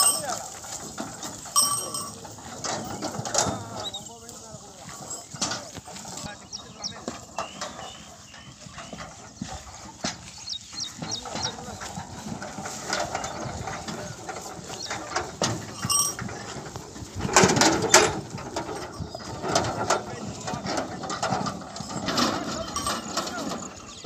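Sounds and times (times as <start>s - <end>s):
cart rattling with stones: 0.0s - 24.0s
bird chirps: 6.4s - 9.6s, 10.3s - 11.6s.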